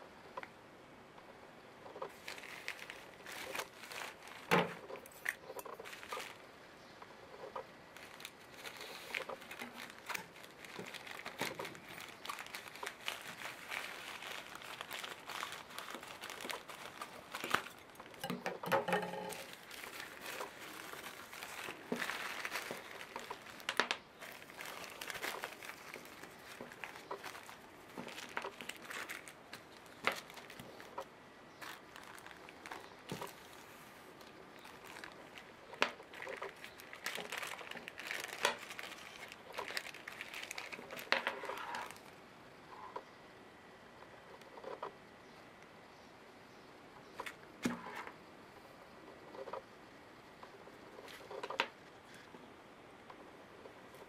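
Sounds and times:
plastic packaging crinkling: 1.9s - 6.5s, 7.4s - 42.2s.

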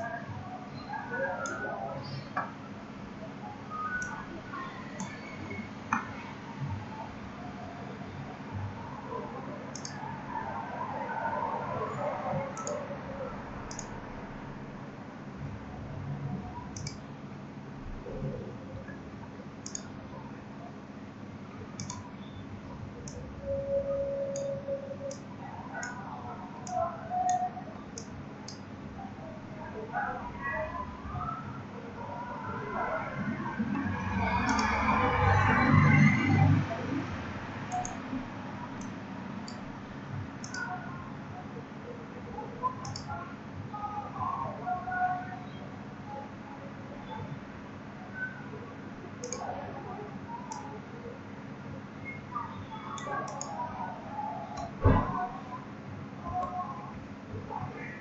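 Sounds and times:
low room hum: 0.0s - 58.0s
computer mouse clicks: 3.9s - 4.2s, 5.0s - 5.2s, 9.7s - 10.0s, 12.5s - 12.8s, 13.7s - 14.0s, 16.7s - 17.0s, 19.6s - 20.0s, 21.8s - 22.0s, 24.3s - 24.5s, 26.6s - 28.6s, 34.4s - 34.8s, 37.7s - 38.0s, 40.4s - 40.7s, 42.8s - 43.1s, 49.2s - 49.5s, 52.9s - 53.6s
computer mouse button clicks: 13.7s - 13.9s, 16.8s - 17.0s, 19.6s - 19.9s, 21.8s - 22.0s, 42.8s - 43.1s, 49.2s - 49.4s.

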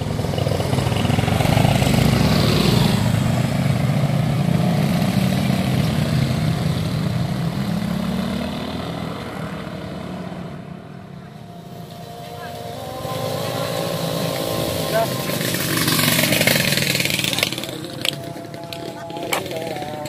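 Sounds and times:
vehicle engine running: 10.8s - 20.0s.

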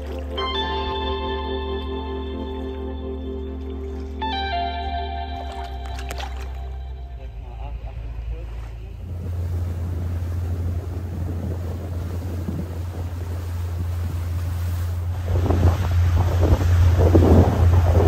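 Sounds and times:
low motor drone: 0.0s - 18.0s
rush of boat wake: 0.0s - 18.0s
wind buffeting microphone: 7.3s - 18.0s.

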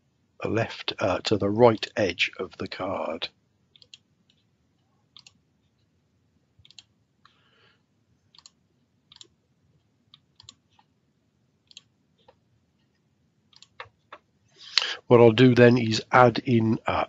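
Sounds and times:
computer mouse clicks: 3.7s - 4.5s, 5.1s - 5.4s, 6.6s - 7.4s, 8.3s - 9.4s, 10.1s - 10.9s, 11.6s - 12.9s, 13.5s - 14.3s.

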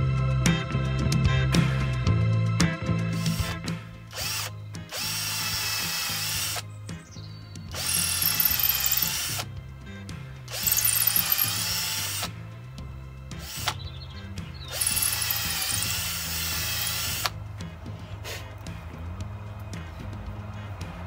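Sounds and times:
background music: 0.0s - 21.0s
cordless drill whining: 3.2s - 6.6s, 7.7s - 9.5s, 10.5s - 12.4s, 13.4s - 13.8s, 14.7s - 17.4s.

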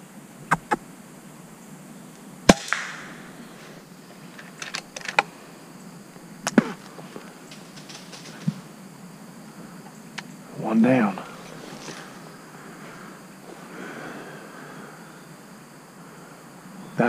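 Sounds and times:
air rifle shot crack: 2.5s - 3.2s
faint crack: 6.4s - 8.7s.

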